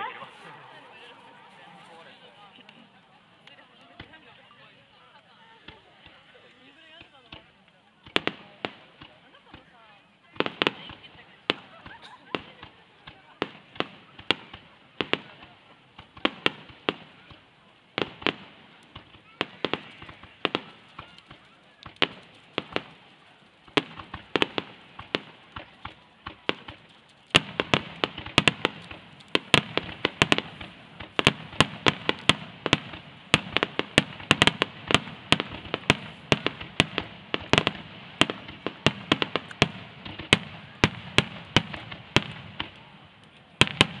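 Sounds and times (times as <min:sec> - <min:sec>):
steady rush of noise: 0:00.0 - 0:03.8
firework shells bursting: 0:18.0 - 0:44.0.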